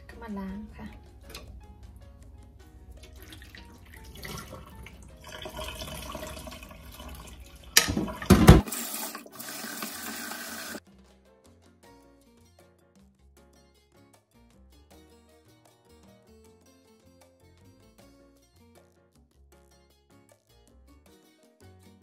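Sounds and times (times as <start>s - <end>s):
water swishing as rice is stirred: 3.0s - 10.6s
tap running: 3.0s - 10.8s.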